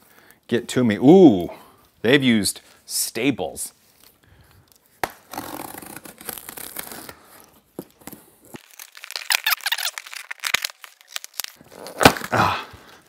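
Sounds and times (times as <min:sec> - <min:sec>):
cardboard tearing and scraping: 0:05.3 - 0:07.1, 0:08.5 - 0:12.4.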